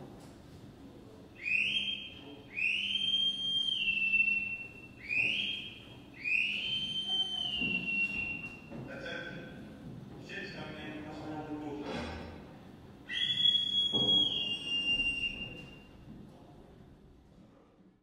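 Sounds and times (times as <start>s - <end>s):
high-pitched swooping whistle: 1.4s - 8.6s, 13.1s - 15.9s.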